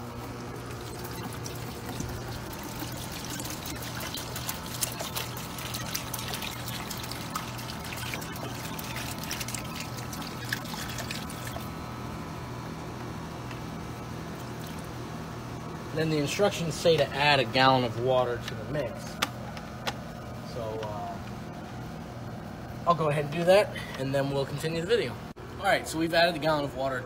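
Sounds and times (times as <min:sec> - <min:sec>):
liquid pouring into bucket: 0:00.0 - 0:11.8, 0:14.4 - 0:15.0
steady low hum: 0:00.0 - 0:27.0.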